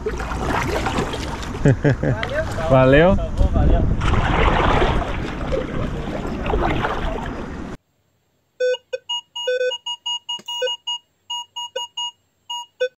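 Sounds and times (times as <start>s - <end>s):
outdoor wind noise: 0.0s - 8.6s.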